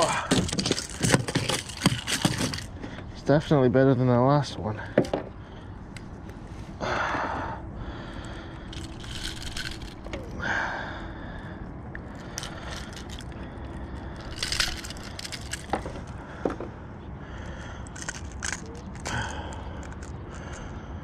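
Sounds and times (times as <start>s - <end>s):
handling rustles: 0.0s - 3.1s, 8.7s - 10.3s, 12.4s - 16.7s.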